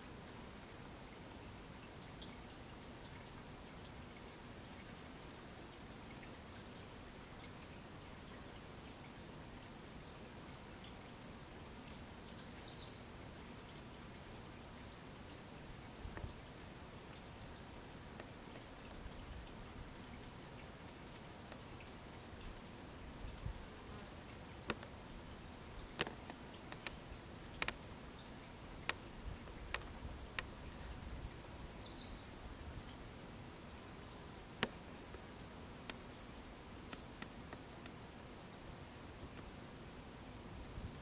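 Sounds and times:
small bird chirping: 30.7 - 32.8.

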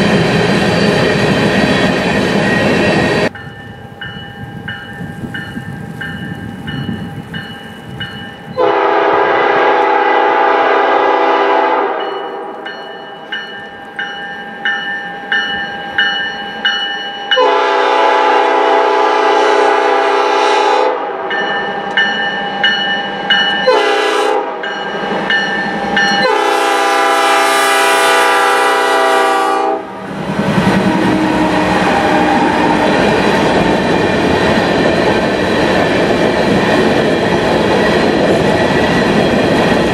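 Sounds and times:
train wheels on rails: 0.0 - 20.4, 21.2 - 39.9
locomotive bell ringing: 2.3 - 8.7, 12.0 - 17.7, 21.3 - 23.9, 24.6 - 26.5
locomotive horn blasts: 8.6 - 12.7, 17.4 - 21.3, 23.6 - 24.7, 26.2 - 30.1.

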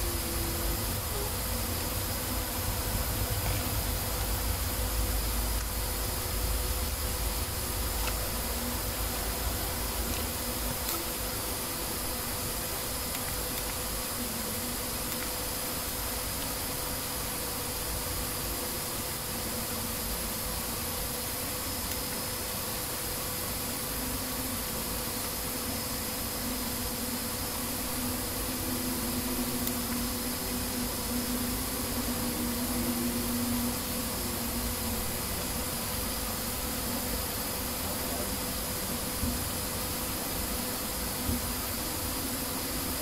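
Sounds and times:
faint wavering tone: 0.0 - 5.2
background hiss: 0.0 - 43.0
faint hum: 0.0 - 43.0
thin high whine: 0.0 - 43.0.

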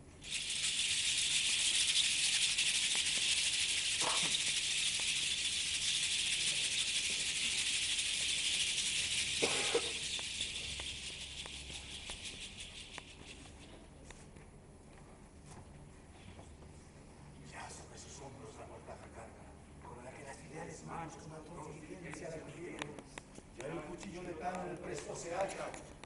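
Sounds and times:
dry rattling hiss: 0.0 - 13.8.

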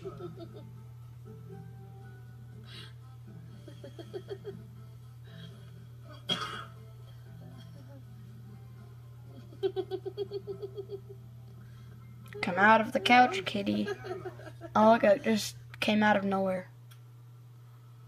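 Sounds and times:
person laughing: 0.0 - 0.7, 3.6 - 4.6, 9.4 - 11.2, 12.5 - 14.8
steady low hum: 0.0 - 18.0
cough-like burst: 6.2 - 6.8.

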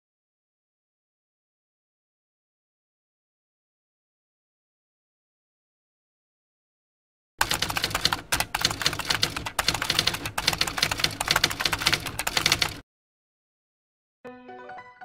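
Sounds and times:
typewriter key clicks: 7.4 - 12.8.

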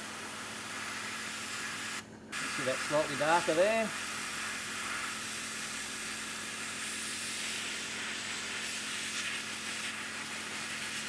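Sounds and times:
airbrush hissing: 0.0 - 11.0.

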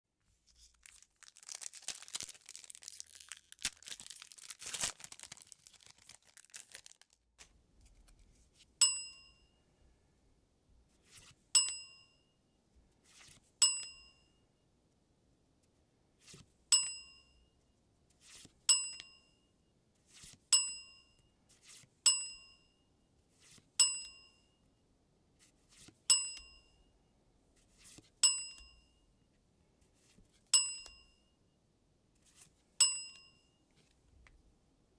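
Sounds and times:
bright ringing ding: 8.8 - 9.6, 11.6 - 12.3, 13.6 - 14.4, 16.7 - 17.4, 23.8 - 24.6, 30.6 - 31.3, 32.8 - 33.6
card sliding rustle: 13.0 - 13.4.

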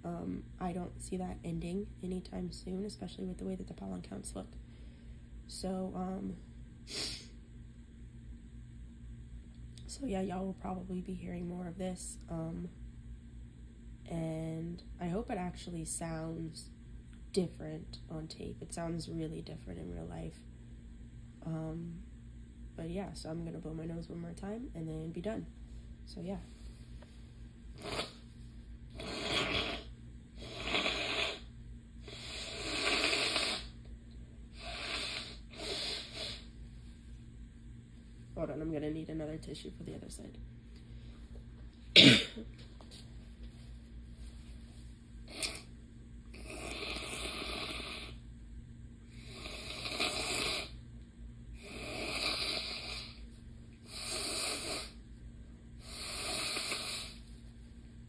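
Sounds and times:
person blowing nose: 6.9 - 7.3, 27.8 - 28.2, 29.0 - 31.5, 32.1 - 33.7, 34.6 - 36.5, 49.4 - 50.7, 53.9 - 55.0, 55.8 - 57.2.

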